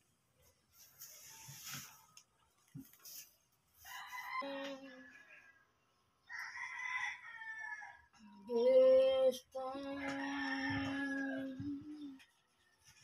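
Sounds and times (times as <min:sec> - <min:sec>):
rooster crowing: 0:03.8 - 0:05.6, 0:06.2 - 0:08.2, 0:09.8 - 0:11.8
woman singing: 0:08.5 - 0:12.2.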